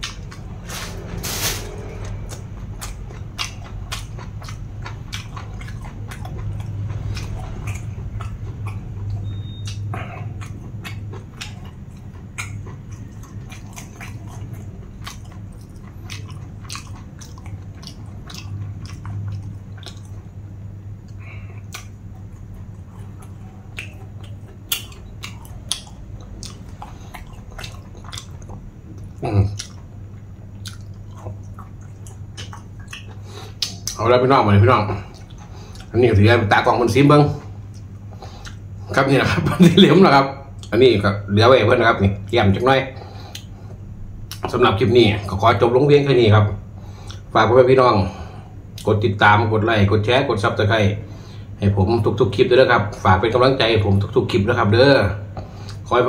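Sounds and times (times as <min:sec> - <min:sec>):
man chewing food: 0:00.0 - 0:34.2, 0:34.8 - 0:39.0, 0:40.4 - 0:40.8, 0:42.2 - 0:44.5, 0:46.8 - 0:47.4, 0:55.3 - 0:55.9
steady low hum: 0:00.0 - 0:56.0.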